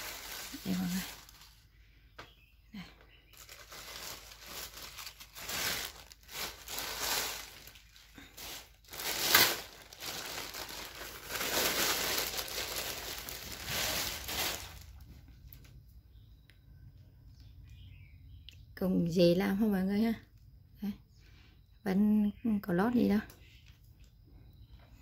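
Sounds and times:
plastic bag crinkling: 0:00.0 - 0:01.7, 0:03.3 - 0:15.7.

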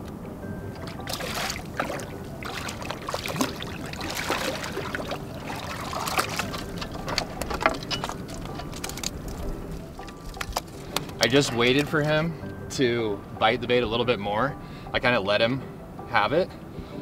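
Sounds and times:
seawater sloshing among rocks: 0:00.8 - 0:12.2.

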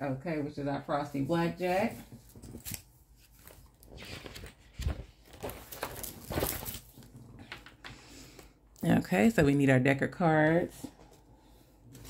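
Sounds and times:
paper sheets rustling: 0:01.8 - 0:07.1.

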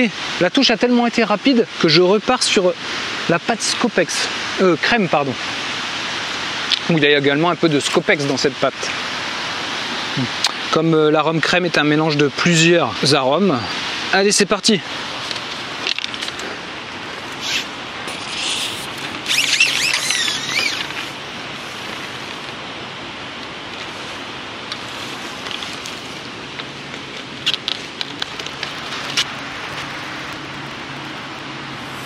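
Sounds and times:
steady rushing outdoor noise: 0:00.0 - 0:32.0
high wavering chirping: 0:17.3 - 0:21.2.

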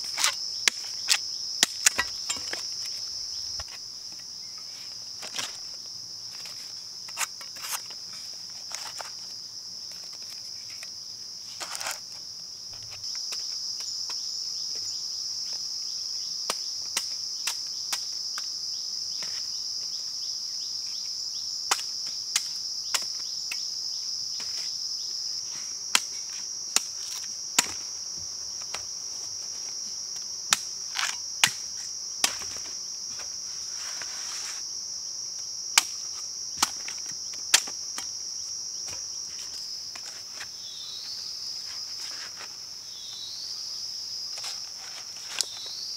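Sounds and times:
machete knocking bamboo: 0:35.8 - 0:36.0.

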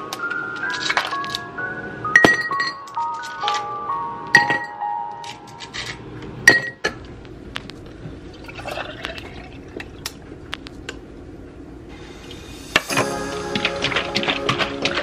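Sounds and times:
glass jar clinking: 0:02.2 - 0:02.9
coffee pouring over ice: 0:08.4 - 0:10.0.

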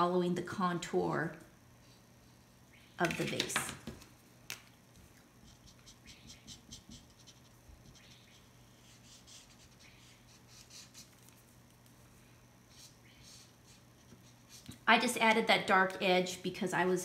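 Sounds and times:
marker scratching on paper: 0:05.4 - 0:11.2, 0:12.7 - 0:14.8.

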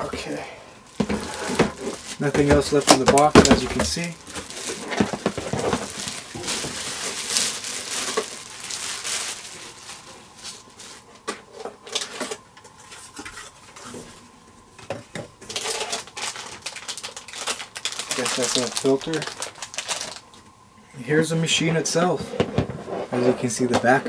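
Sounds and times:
plastic bag rustling: 0:00.0 - 0:12.4, 0:15.5 - 0:20.4.

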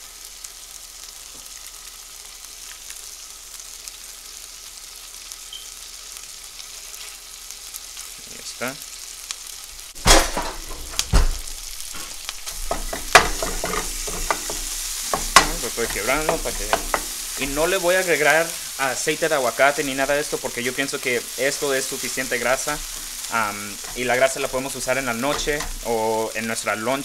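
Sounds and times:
meat sizzling in a frying pan: 0:00.0 - 0:27.0
wooden spatula scraping a pan: 0:10.3 - 0:18.8, 0:19.4 - 0:26.4.

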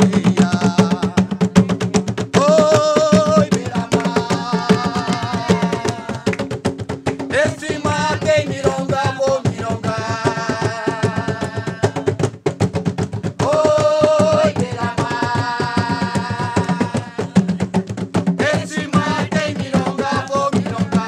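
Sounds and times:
drum strokes: 0:00.0 - 0:21.0
women singing long held notes: 0:02.4 - 0:06.3, 0:07.4 - 0:12.1, 0:13.4 - 0:17.5, 0:18.4 - 0:21.0.

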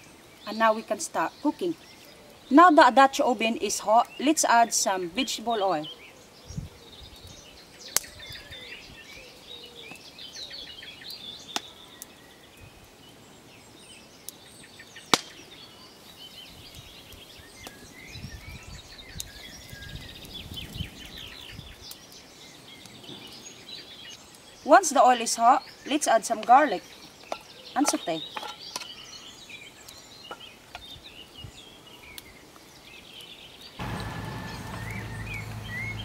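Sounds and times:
birds chirping and singing: 0:13.8 - 0:36.0
wood fire popping: 0:33.8 - 0:36.0.

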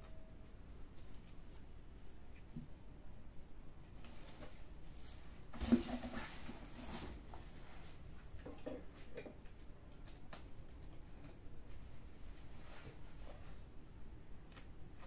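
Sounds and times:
rustling handling noise: 0:04.0 - 0:08.2.

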